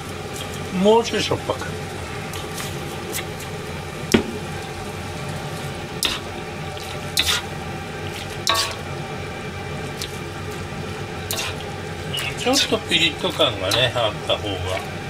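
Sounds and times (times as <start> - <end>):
stew being stirred: 4.4 - 15.0
utensil clinking against pot: 8.4 - 8.8.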